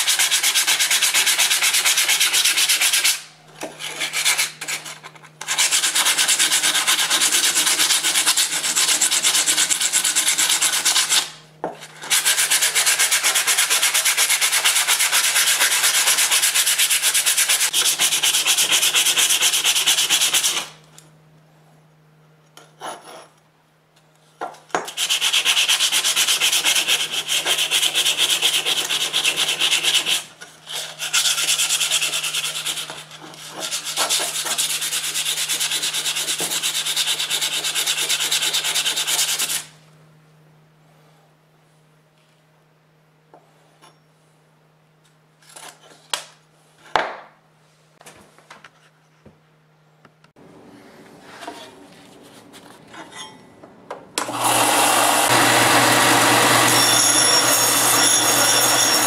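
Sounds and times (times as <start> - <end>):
sandpaper scratching on metal: 0.0 - 3.2, 3.8 - 11.3, 11.9 - 20.7, 25.0 - 39.7.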